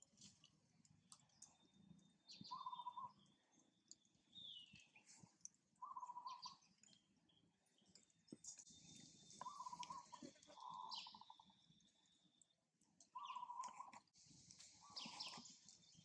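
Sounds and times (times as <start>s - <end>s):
buzzy rattling animal calls: 5.8s - 6.6s, 9.3s - 11.5s, 13.2s - 13.9s
high chirps: 9.0s - 11.8s.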